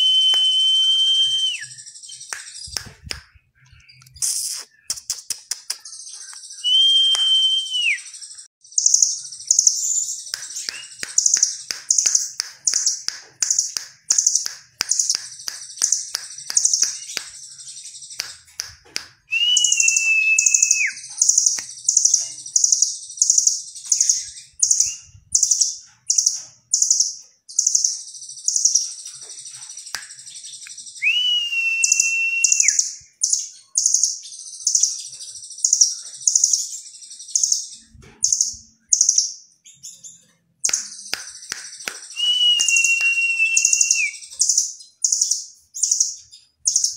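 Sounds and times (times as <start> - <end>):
bird long whistle: 0.0 - 1.8, 6.6 - 8.2, 19.3 - 21.1, 31.0 - 33.0, 42.1 - 44.4
quick clicks: 4.0 - 6.4.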